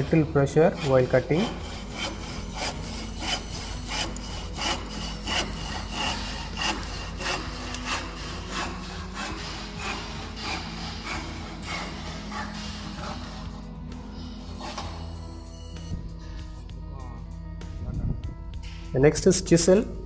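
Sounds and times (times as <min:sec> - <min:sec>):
hand saw cutting wood: 0:00.0 - 0:15.4.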